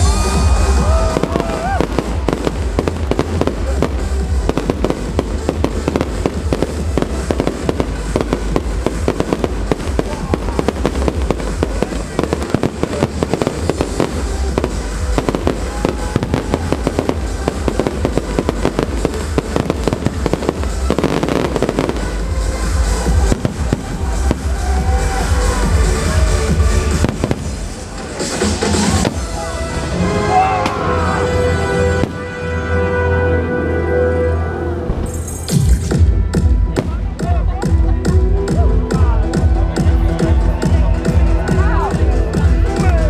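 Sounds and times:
fireworks bursting and crackling: 0.0s - 30.0s
music playing: 0.0s - 43.0s.

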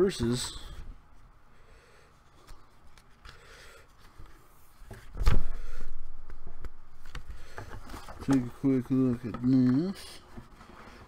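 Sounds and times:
rustling of items being unpacked: 2.2s - 11.0s.

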